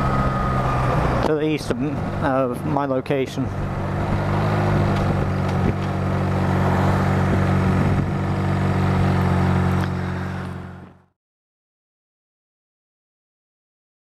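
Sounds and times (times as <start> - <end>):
motorcycle engine running: 0.0 - 11.1
wind and road rush: 0.0 - 11.1.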